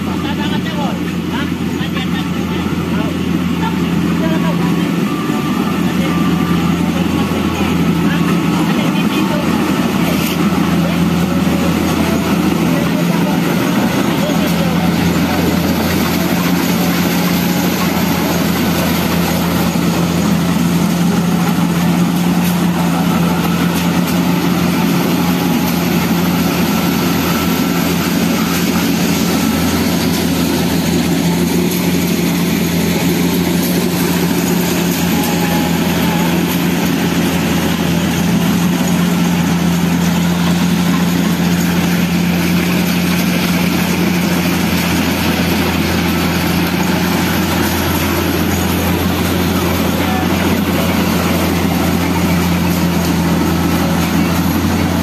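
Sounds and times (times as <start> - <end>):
combine harvester engine droning: 0.0 - 55.0.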